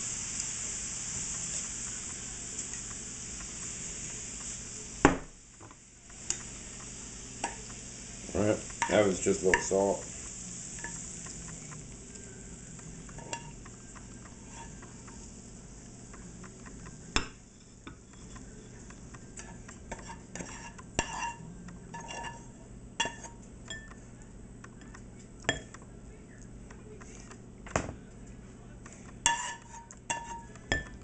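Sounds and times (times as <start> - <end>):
faint sizzle: 0.0 - 31.0
utensil scraping and knocking pan: 14.2 - 15.1, 19.4 - 23.4, 29.3 - 31.0.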